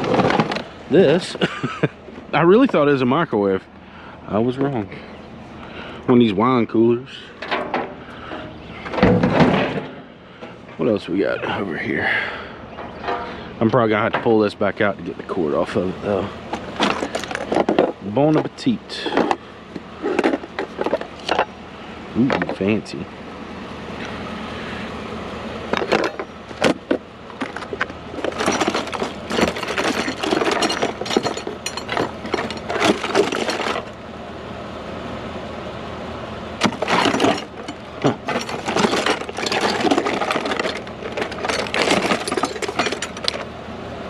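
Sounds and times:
household items knocking and rattling: 0:00.0 - 0:00.7, 0:16.6 - 0:18.5, 0:25.8 - 0:33.9, 0:36.6 - 0:43.4
steady low hum: 0:00.0 - 0:44.0.

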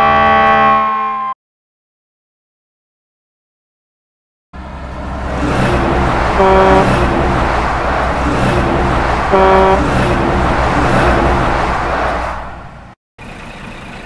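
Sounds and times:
truck horn toots: 0:00.0 - 0:01.4, 0:06.3 - 0:07.5, 0:09.3 - 0:10.4
road noise: 0:04.6 - 0:14.0
truck engine running: 0:04.6 - 0:14.0.

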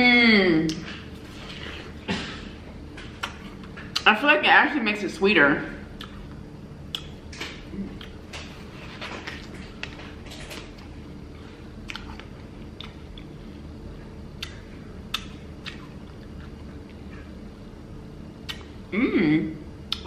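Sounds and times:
person chewing watermelon: 0:05.9 - 0:17.4, 0:18.4 - 0:18.8.

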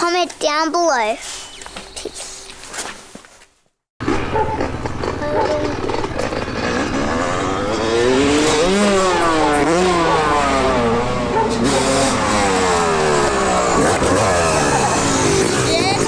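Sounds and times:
dirt bike engines revving: 0:04.0 - 0:16.0.

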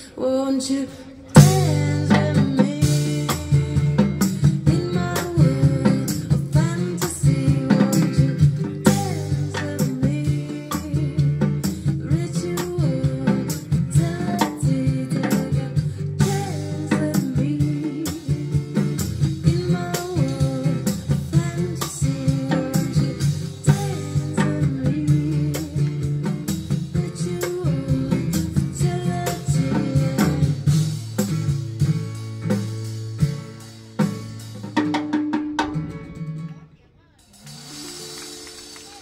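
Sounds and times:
woman singing: 0:00.0 - 0:31.0
acoustic guitar strumming: 0:01.3 - 0:39.0
drum kit with cymbal: 0:01.3 - 0:39.0.

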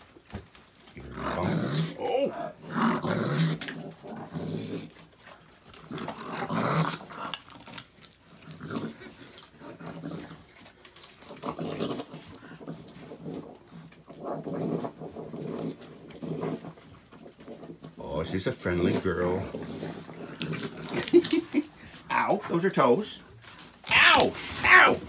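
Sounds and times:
raccoons growling: 0:00.6 - 0:25.0.

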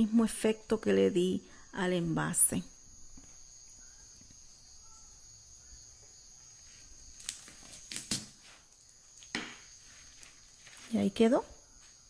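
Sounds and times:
rustles and scrapes: 0:06.6 - 0:11.2.

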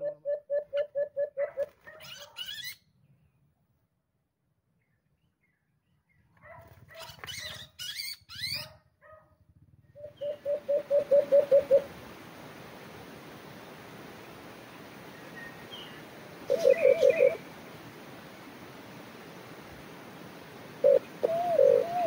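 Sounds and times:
dove hooting: 0:00.0 - 0:01.7, 0:10.0 - 0:22.0
short rising squealing calls: 0:02.0 - 0:02.8, 0:07.0 - 0:08.8
steady hiss: 0:10.2 - 0:22.0.

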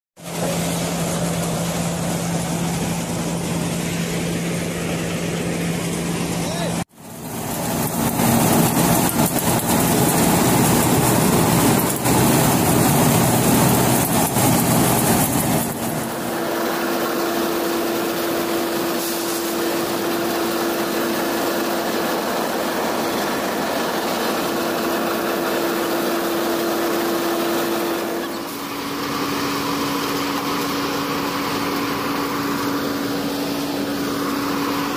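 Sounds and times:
machine hum: 0:00.2 - 0:34.9
rushing hiss: 0:18.9 - 0:19.8.

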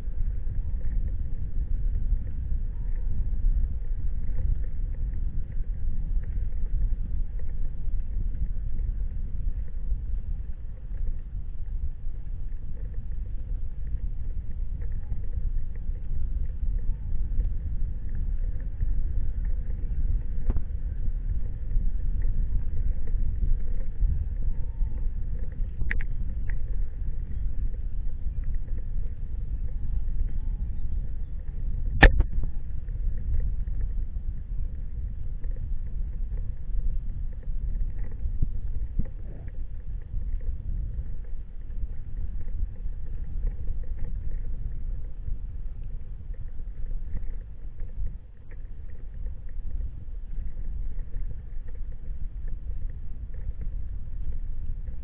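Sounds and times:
sharp click: 0:32.0 - 0:32.4.

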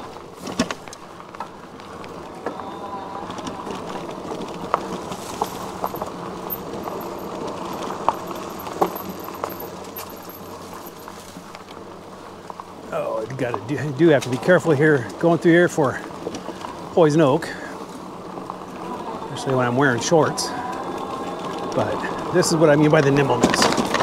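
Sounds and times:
bike knocking and rattling: 0:00.0 - 0:02.6, 0:03.2 - 0:18.8, 0:19.4 - 0:24.0
bike tyres rolling on dirt: 0:00.0 - 0:24.0.

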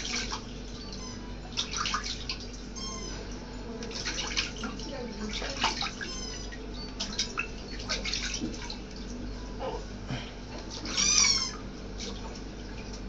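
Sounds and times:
water splashing in a washbasin: 0:00.0 - 0:09.3, 0:10.5 - 0:13.0
high-pitched animal cry: 0:00.9 - 0:01.3, 0:02.8 - 0:03.3, 0:05.8 - 0:06.6, 0:10.8 - 0:11.6.

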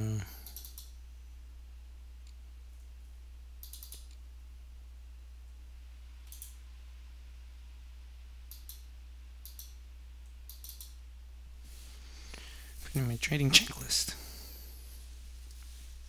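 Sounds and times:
low electrical hum: 0:00.0 - 0:16.0
computer mouse clicks: 0:00.4 - 0:00.9, 0:03.6 - 0:04.2, 0:06.2 - 0:06.6, 0:08.5 - 0:11.0.

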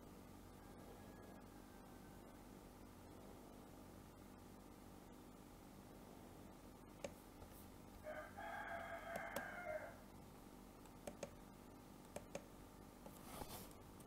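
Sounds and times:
computer mouse clicks: 0:07.0 - 0:07.2, 0:09.1 - 0:09.5, 0:10.8 - 0:11.4, 0:12.0 - 0:13.2.

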